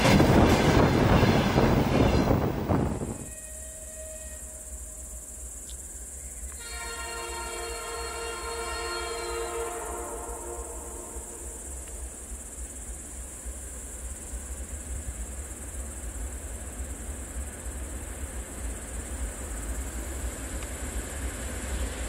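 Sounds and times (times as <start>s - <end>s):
crickets chirping: 0.0s - 22.0s
diesel locomotive drone: 0.0s - 22.0s
train horn chord: 3.0s - 5.3s, 6.5s - 12.0s.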